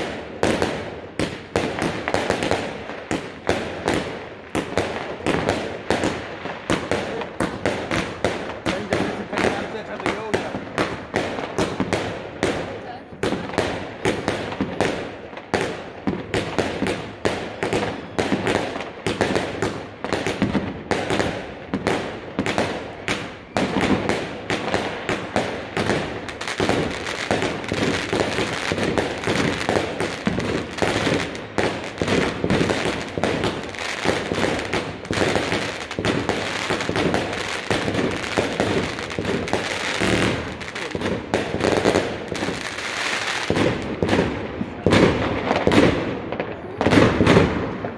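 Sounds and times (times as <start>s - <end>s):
fireworks bangs and crackles: 0.0s - 47.9s.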